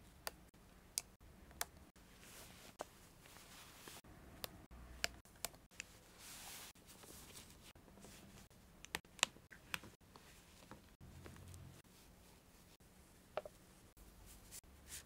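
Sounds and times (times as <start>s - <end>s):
soft fabric rustle: 2.0s - 4.0s, 5.9s - 8.5s, 9.9s - 15.0s.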